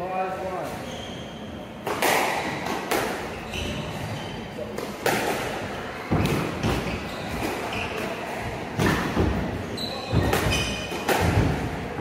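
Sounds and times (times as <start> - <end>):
shoes squeaking on wooden floor: 3.3 - 4.5, 6.1 - 8.1, 9.6 - 11.0
squash ball hits: 4.7 - 8.0, 8.7 - 12.0.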